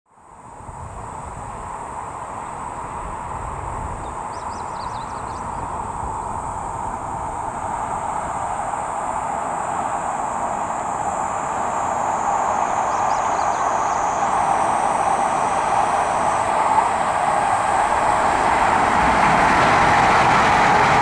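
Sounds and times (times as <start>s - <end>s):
thin high steady tone: 0.3s - 21.0s
train rushing rumble: 0.3s - 21.0s.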